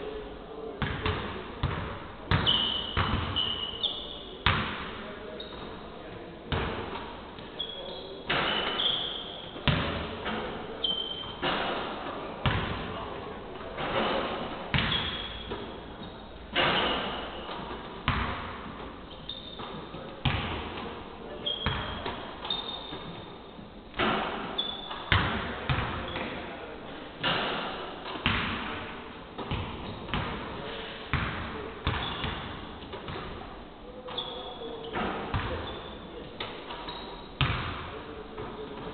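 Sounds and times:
basketballs bouncing: 0.8 - 3.8, 4.4 - 5.6, 6.5 - 7.5, 8.3 - 13.0, 13.8 - 23.3, 23.9 - 26.4, 27.2 - 28.8, 29.4 - 33.4, 34.0 - 36.5, 37.4 - 38.9
shoe squeaks: 2.4 - 4.4, 5.3 - 5.8, 7.5 - 9.6, 10.6 - 11.4, 14.9 - 17.6, 19.0 - 20.0, 21.4 - 23.6, 24.4 - 25.1, 26.0 - 26.4, 32.0 - 32.4, 34.0 - 37.4.

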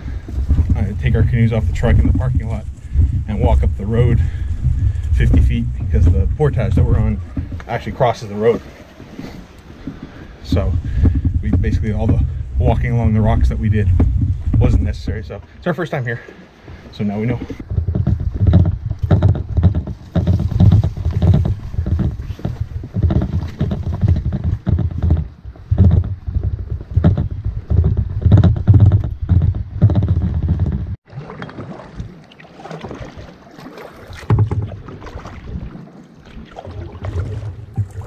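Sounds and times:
footsteps on a trail: 0.0 - 7.8
wind on microphone: 0.0 - 8.8, 9.7 - 15.4, 17.3 - 31.0, 34.0 - 38.0
water splashing and lapping: 0.0 - 38.0.

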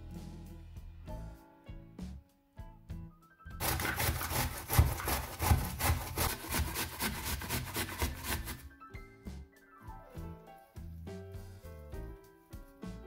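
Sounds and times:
apple rasping on grater: 3.6 - 8.6.

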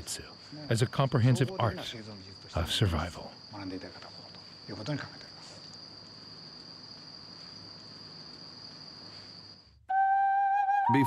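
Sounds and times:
crickets chirring: 0.0 - 11.0
sustained musical note: 9.9 - 11.0.

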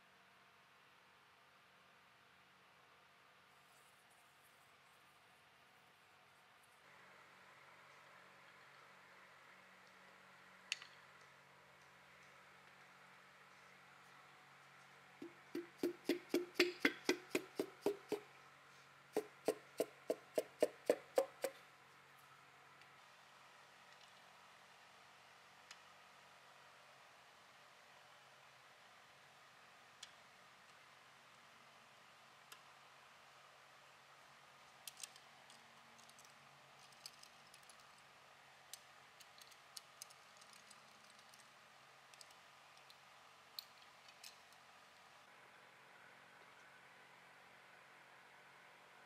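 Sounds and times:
hammer handle tapping piston: 15.2 - 18.2
faint metal clicks of socket wrench: 38.7 - 41.5.

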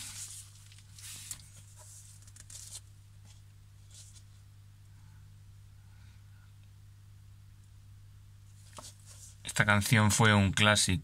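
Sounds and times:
paper sleeves rustling: 0.0 - 4.5, 8.5 - 9.7
steady low hum: 0.0 - 11.0.

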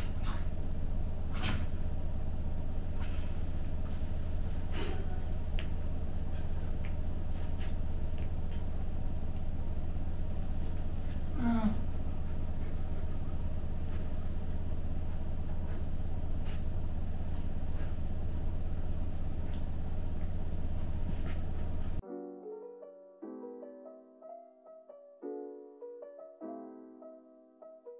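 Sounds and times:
room hum and hiss: 0.0 - 22.0
soft piano music: 22.0 - 27.9.

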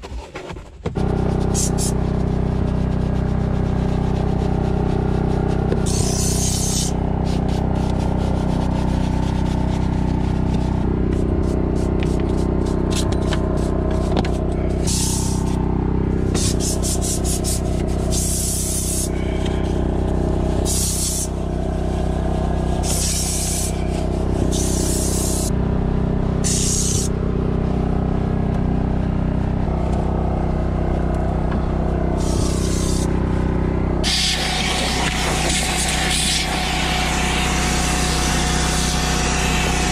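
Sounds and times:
brush scrubbing plastic: 0.0 - 15.6, 16.3 - 21.3, 32.2 - 33.1
low hum: 0.9 - 38.8.

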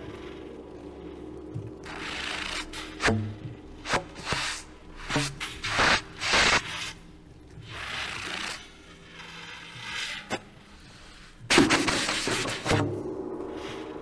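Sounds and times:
rubbing and scraping noises: 1.8 - 12.9.

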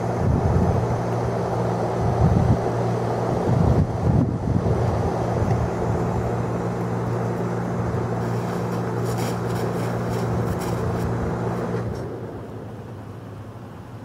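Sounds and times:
low motor hum: 0.0 - 14.0
horse walking on plastic tarp: 8.1 - 11.7.

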